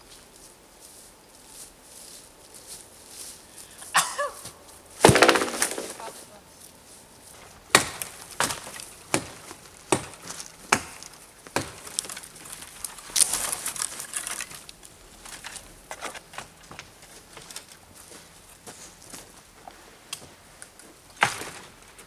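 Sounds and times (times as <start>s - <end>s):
dry twigs snapping: 7.8s - 15.6s.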